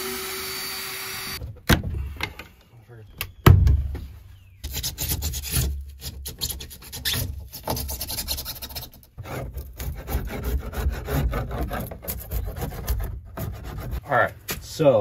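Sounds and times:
scraper blade scraping foam: 4.6s - 14.0s.

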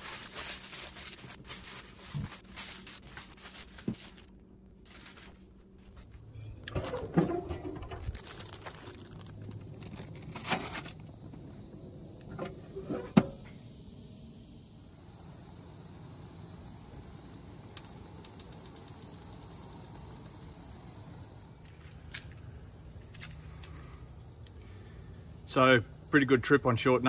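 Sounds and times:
insect chirping: 4.9s - 27.0s
foil tray clanking on metal grate: 6.7s - 9.2s.

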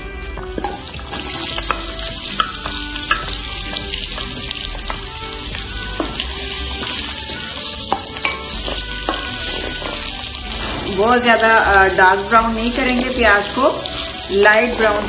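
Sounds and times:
onions sizzling in oil: 0.5s - 15.0s.

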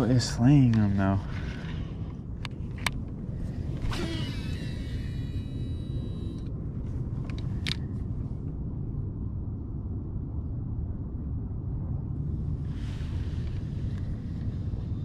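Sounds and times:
wind buffeting microphone: 0.0s - 15.0s
fishing reel spool whine: 3.5s - 6.5s
fishing reel clicks: 3.9s - 6.5s.

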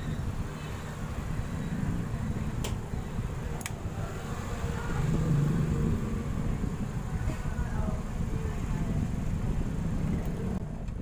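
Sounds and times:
sharp clicks: 3.6s - 3.8s.

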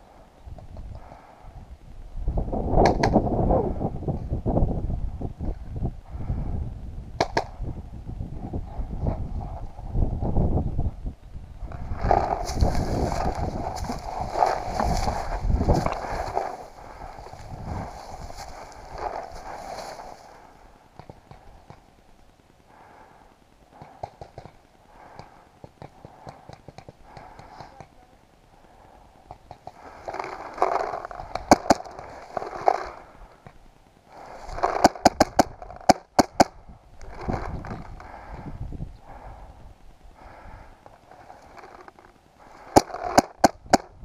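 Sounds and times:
paintball marker shots: 34.6s - 36.6s.

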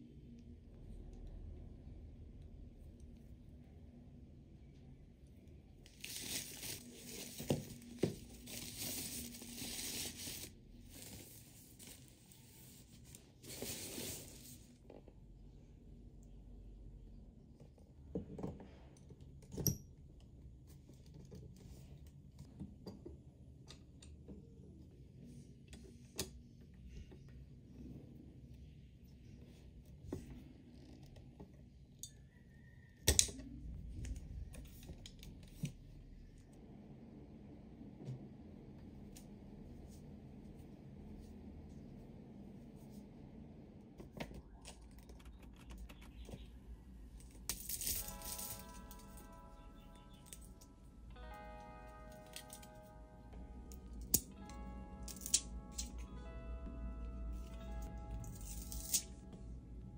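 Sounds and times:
plastic sheet crinkling and rustling: 5.9s - 14.8s.

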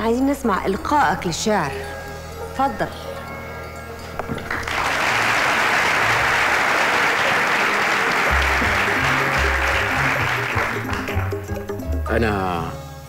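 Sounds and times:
audience applauding: 4.4s - 11.8s
background music with low bass: 8.1s - 13.0s.

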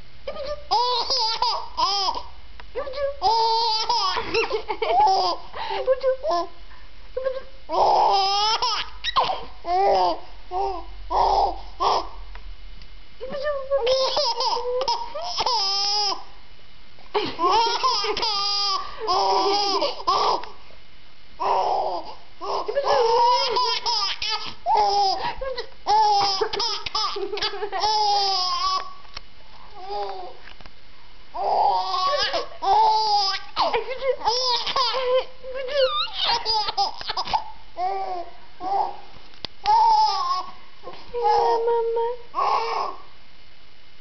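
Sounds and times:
baby laughing: 0.4s - 2.3s, 3.2s - 5.5s, 7.7s - 12.2s, 13.9s - 16.3s, 17.2s - 20.5s, 21.4s - 29.0s, 31.4s - 38.8s, 39.7s - 40.6s.

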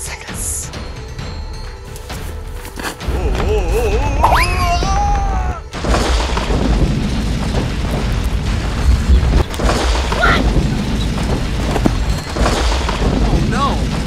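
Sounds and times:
low booming and rumbling: 3.1s - 14.0s.

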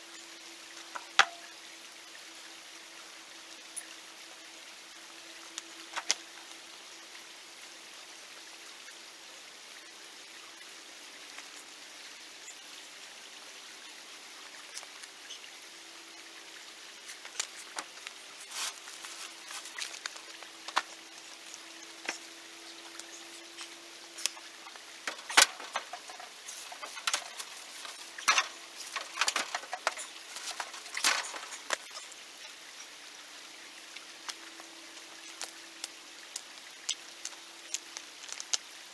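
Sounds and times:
creek water flowing: 0.0s - 38.9s
rocks clacking together: 17.1s - 32.0s.

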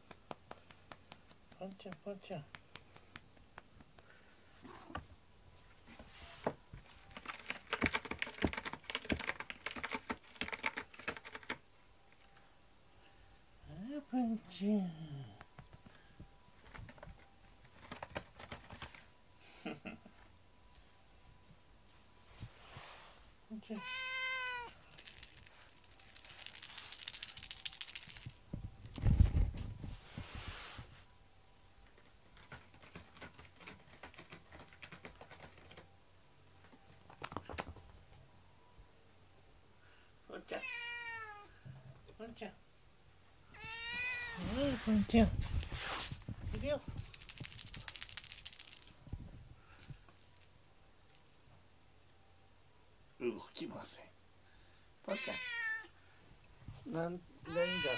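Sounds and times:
cat scratching cardboard: 7.1s - 11.5s, 16.6s - 19.0s
cat meowing: 23.7s - 24.8s, 40.6s - 41.5s, 43.5s - 44.6s, 55.1s - 55.9s, 57.4s - 57.9s
dry scratchy rattling: 46.8s - 49.0s.

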